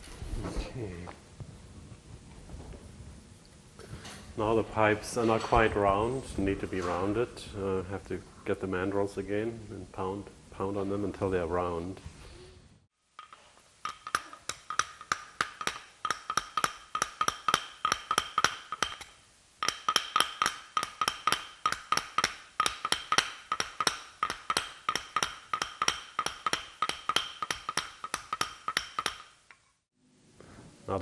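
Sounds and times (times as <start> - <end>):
mallet tapping on metal pipe: 13.2 - 29.4.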